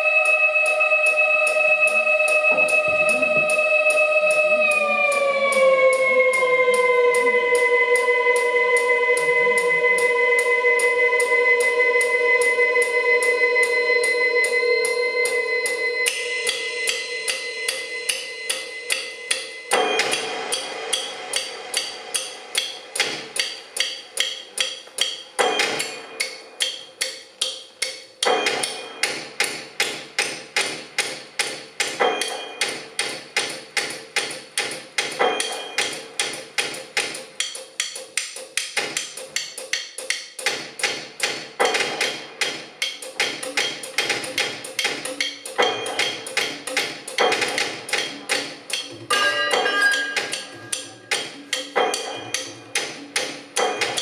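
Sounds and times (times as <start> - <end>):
synthesizer drone: 0.0 - 22.5, 49.1 - 51.5
fast ticking beat: 16.1 - 54.0.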